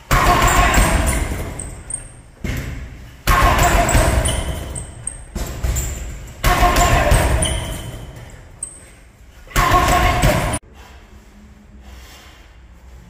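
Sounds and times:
gloved punches on heavy bag: 0:00.1 - 0:01.8, 0:02.4 - 0:08.1.

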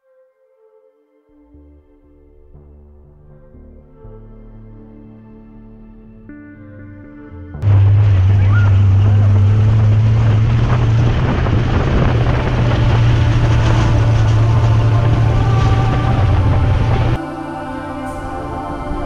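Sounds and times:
dune buggy engine running: 0:07.6 - 0:17.2
broad rushing noise: 0:07.6 - 0:19.0.

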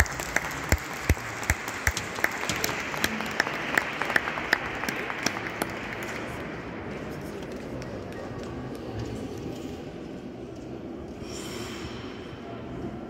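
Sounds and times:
person clapping steadily: 0:00.0 - 0:06.2
scattered applause: 0:00.0 - 0:09.7.

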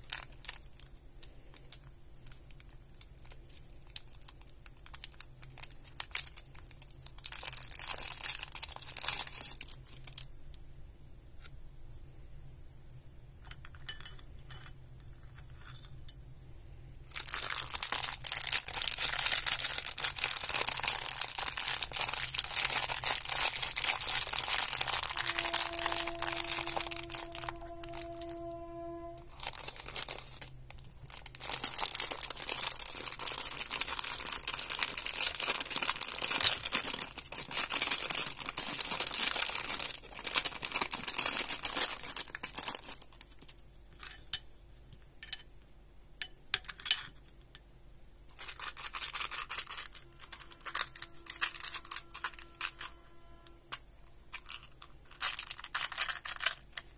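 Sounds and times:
plastic candy bag crinkling: 0:00.0 - 0:10.3, 0:17.1 - 0:43.6, 0:48.3 - 0:56.9.

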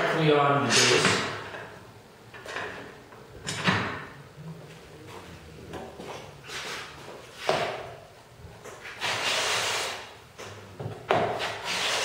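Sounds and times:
tools knocking on a bench: 0:10.8 - 0:11.4.

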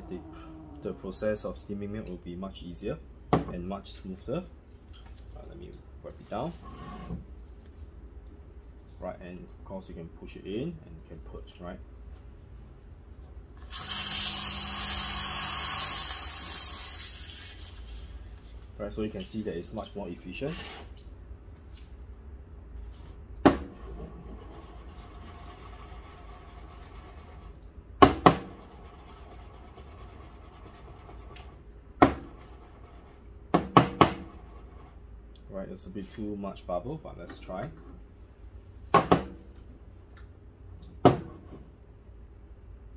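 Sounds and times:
low steady hum: 0:00.0 - 0:42.9
steam wand hissing: 0:13.7 - 0:17.7.

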